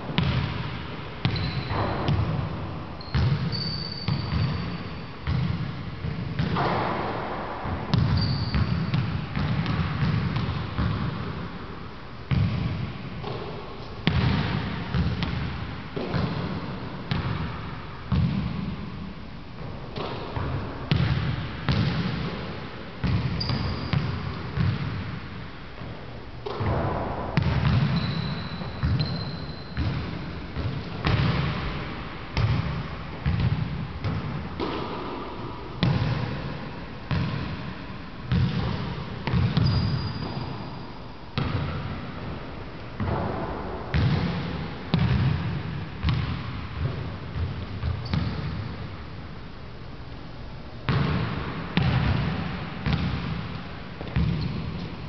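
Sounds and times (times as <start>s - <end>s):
basketball bouncing on hardwood floor: 0.1s - 7.0s, 7.9s - 11.4s, 12.3s - 17.5s, 18.1s - 18.7s, 20.0s - 22.4s, 23.0s - 25.1s, 25.8s - 35.0s, 37.1s - 37.6s, 38.3s - 40.6s, 41.4s - 41.9s, 43.0s - 48.7s, 50.9s - 54.8s.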